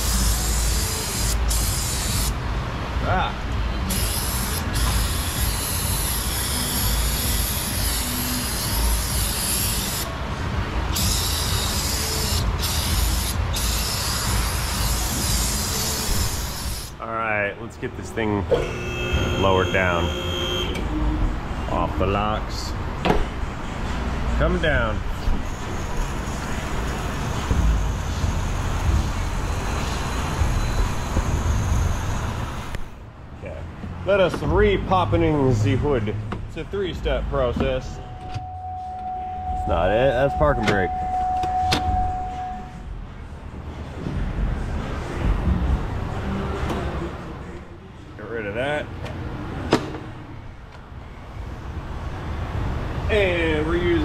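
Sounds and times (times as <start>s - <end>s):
aerosol can spraying: 0.0s - 2.3s, 3.9s - 10.1s
vehicle lift hissing and rumbling: 0.0s - 2.5s, 3.7s - 10.1s, 10.8s - 17.0s, 25.1s - 33.0s.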